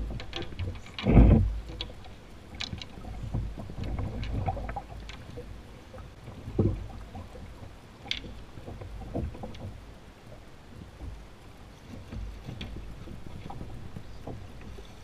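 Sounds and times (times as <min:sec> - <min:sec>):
water gurgling: 0:00.0 - 0:11.4.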